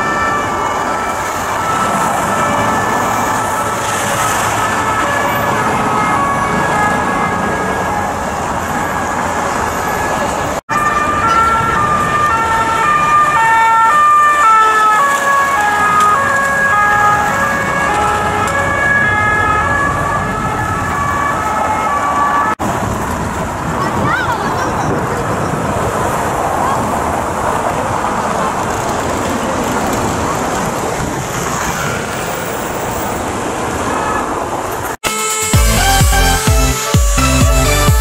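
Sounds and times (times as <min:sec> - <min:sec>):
police sirens two-tone: 0:00.0 - 0:22.6
city traffic: 0:00.0 - 0:38.0.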